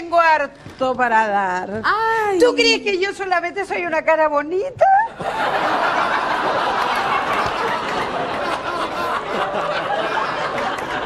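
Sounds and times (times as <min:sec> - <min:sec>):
audience laughing: 0:05.1 - 0:11.0.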